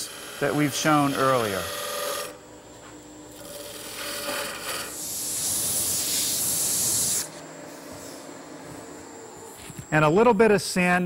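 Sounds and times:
sandpaper hissing on spinning wood: 0.0 - 2.3, 3.6 - 8.3
turning tool shaving wood: 0.0 - 2.3, 3.4 - 5.3
lathe spinning wood: 0.0 - 2.4, 3.4 - 7.4.

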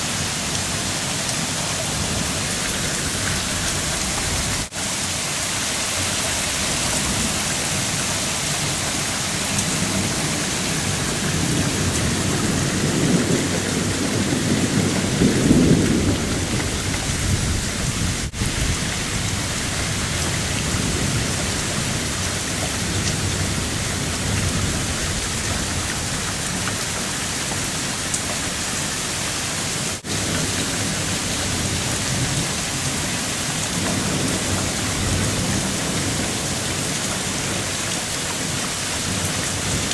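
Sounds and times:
heavy rain pouring: 0.0 - 39.9
low roll of thunder: 9.9 - 26.6.

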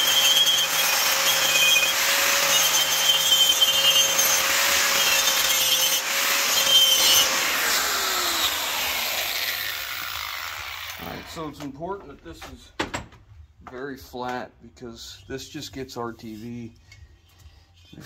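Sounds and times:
grinder motor winding down: 0.0 - 11.4
angle grinder whining: 0.0 - 11.6
grinder disc scrubbing metal: 0.0 - 11.6.

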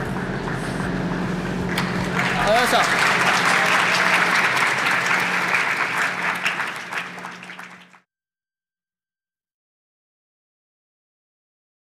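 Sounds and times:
people applauding: 1.7 - 8.0.

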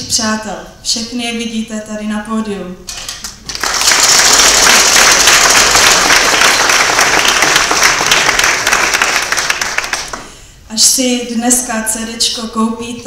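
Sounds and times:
audience applause: 3.5 - 10.3.

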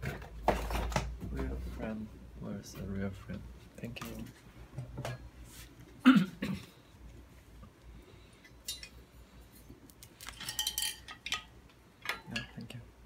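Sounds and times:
person coughing: 6.0 - 6.8
metal bicycle parts clinking: 8.4 - 9.0, 10.2 - 12.6.

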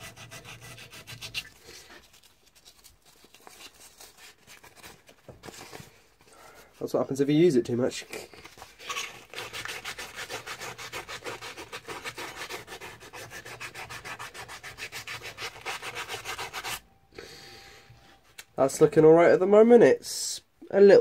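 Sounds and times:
sanding steel blade: 0.0 - 1.5, 9.2 - 16.8.

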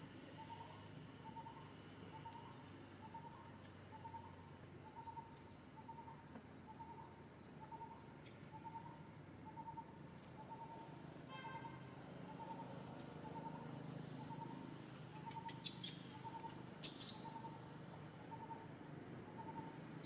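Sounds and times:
bird calling faintly: 0.4 - 18.7.

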